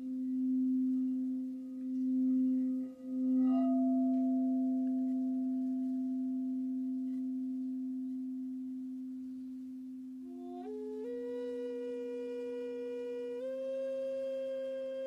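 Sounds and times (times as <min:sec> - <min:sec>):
crystal singing bowl ringing: 0:00.0 - 0:10.6.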